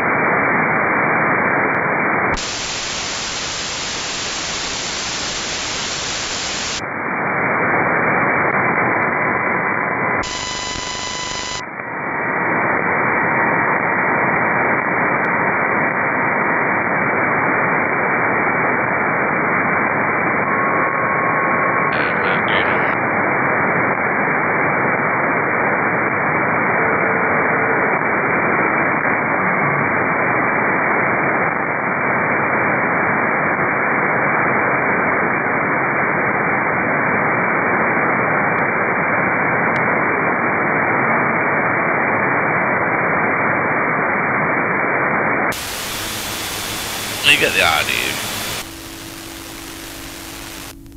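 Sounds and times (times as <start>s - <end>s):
radio receiver static hiss: 0.0s - 20.7s, 21.7s - 25.6s, 42.4s - 50.9s.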